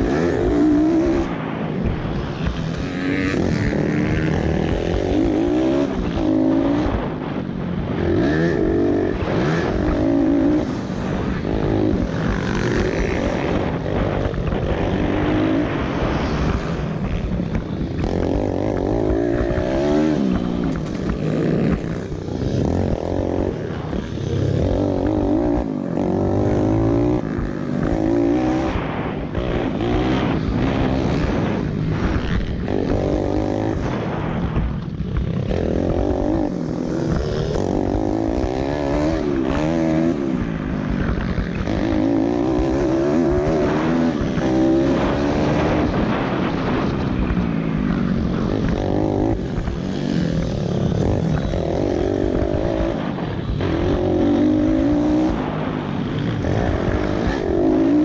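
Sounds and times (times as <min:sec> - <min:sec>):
motorbike engine revving: 0:00.0 - 0:58.0.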